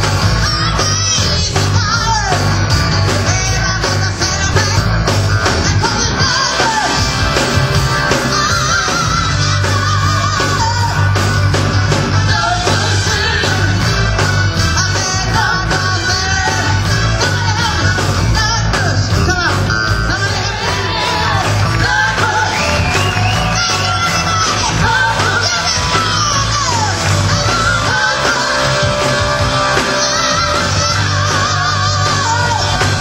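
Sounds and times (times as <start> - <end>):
rock and roll band playing: 0.0 - 33.0
woman singing with vibrato: 3.2 - 7.3, 7.9 - 11.2, 14.7 - 33.0.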